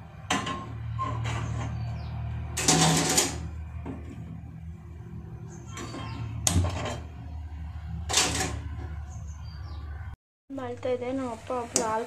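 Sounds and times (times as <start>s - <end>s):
gas burner lighting with hiss: 11.4s - 12.0s.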